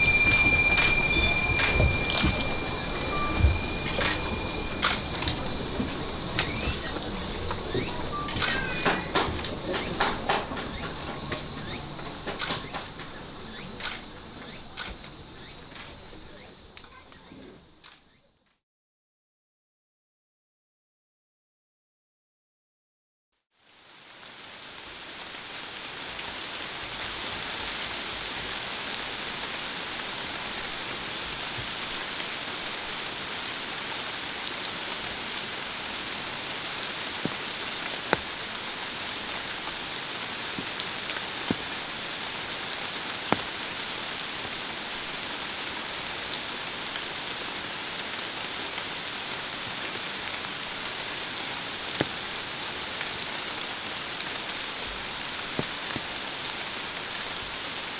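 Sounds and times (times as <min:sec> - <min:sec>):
steady rain falling: 0:00.0 - 0:18.0, 0:23.5 - 0:57.9.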